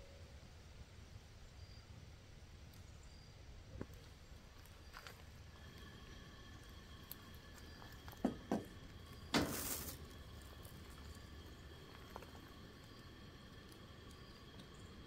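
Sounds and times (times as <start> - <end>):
plastic jug rustling: 9.2 - 10.7.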